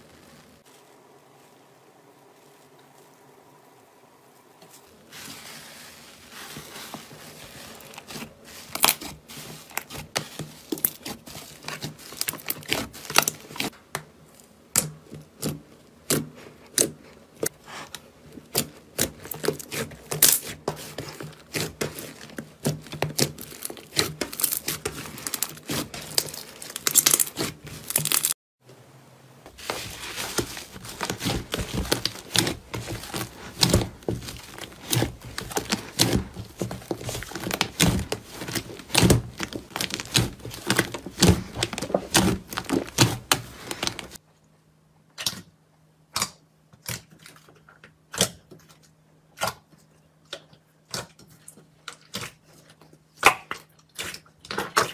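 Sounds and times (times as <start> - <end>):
slime crackling and popping: 7.9 - 13.7, 18.5 - 28.4, 29.6 - 44.2.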